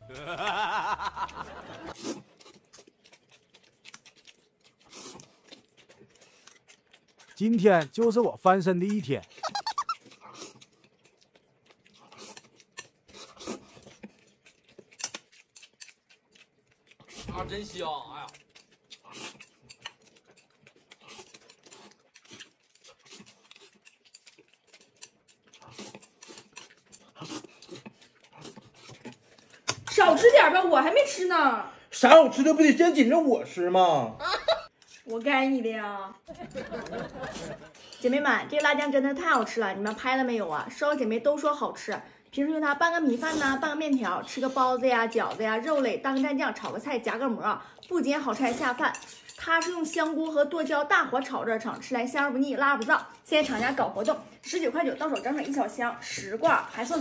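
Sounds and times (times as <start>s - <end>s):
noodles slurped and chewed: 0.4s - 32.0s, 34.7s - 35.6s, 36.3s - 57.0s
wet mouth clicks: 1.3s - 17.3s, 18.2s - 30.0s.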